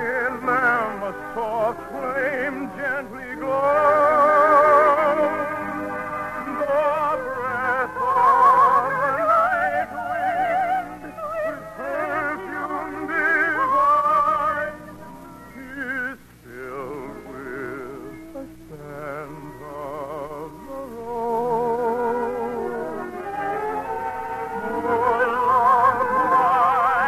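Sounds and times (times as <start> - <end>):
operatic singing with vibrato: 0.0 - 27.0
orchestra playing: 0.6 - 10.4, 21.4 - 27.0.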